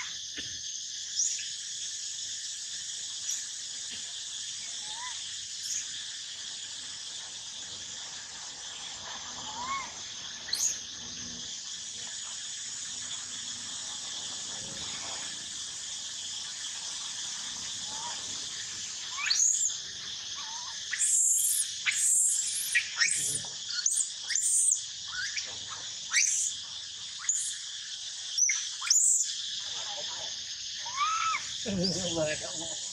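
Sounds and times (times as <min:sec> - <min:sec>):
high-pitched insect chorus: 0:00.0 - 0:32.9
young monkey shrieking cries: 0:04.8 - 0:05.2, 0:09.4 - 0:10.8, 0:19.1 - 0:19.7, 0:20.4 - 0:25.5, 0:26.1 - 0:26.5, 0:30.8 - 0:31.6.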